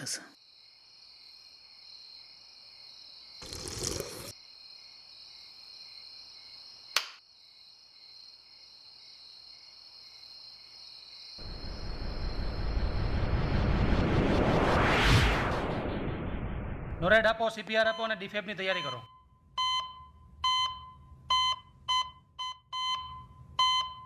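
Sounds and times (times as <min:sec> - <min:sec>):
crickets chirping: 0:00.0 - 0:13.6
sharp click: 0:07.0 - 0:07.2.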